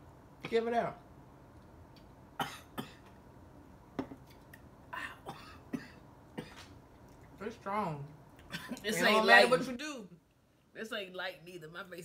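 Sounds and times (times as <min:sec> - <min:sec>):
woman coughing: 0:02.4 - 0:03.0, 0:05.0 - 0:06.6, 0:08.5 - 0:08.8.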